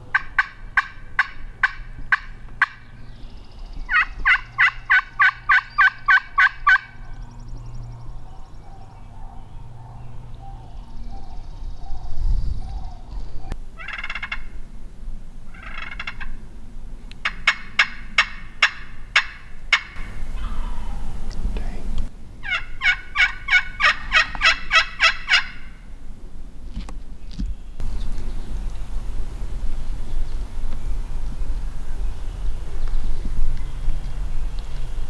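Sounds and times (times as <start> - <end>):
turkey call yelps: 0.1 - 2.8, 3.9 - 7.1, 12.8 - 14.6, 15.5 - 16.4, 17.2 - 21.2, 22.4 - 25.8.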